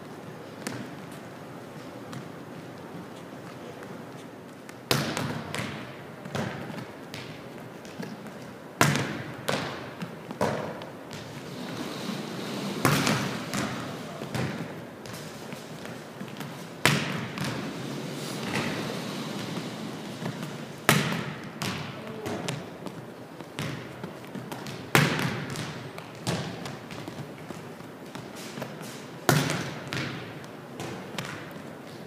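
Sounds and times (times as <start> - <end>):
ball bouncing on hardwood floor: 20.2 - 28.3.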